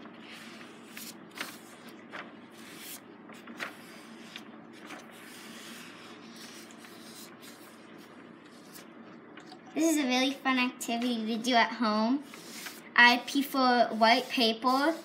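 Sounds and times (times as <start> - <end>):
paintbrush brushing on paper: 3.6 - 8.9, 12.2 - 15.0.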